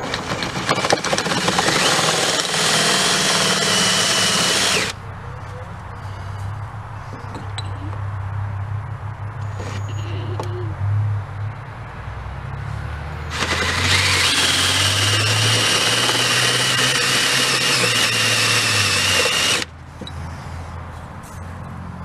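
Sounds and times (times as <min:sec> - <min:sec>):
cordless drill whining: 0:00.0 - 0:05.0, 0:13.3 - 0:19.7.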